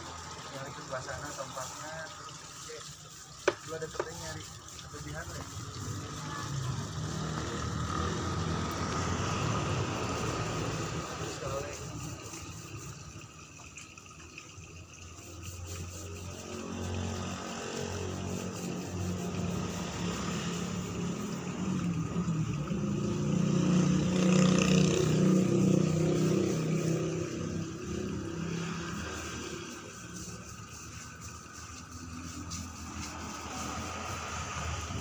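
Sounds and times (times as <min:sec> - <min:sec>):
engine running: 0:05.4 - 0:13.3, 0:15.9 - 0:35.0.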